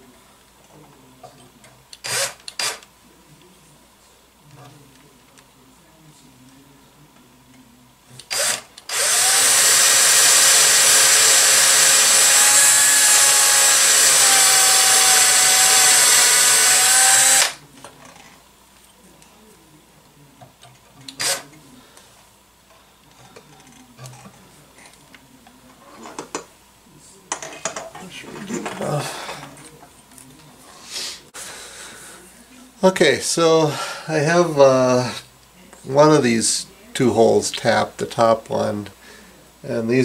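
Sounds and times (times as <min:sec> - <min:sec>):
cordless drill whining: 0:02.0 - 0:02.8, 0:08.3 - 0:17.6.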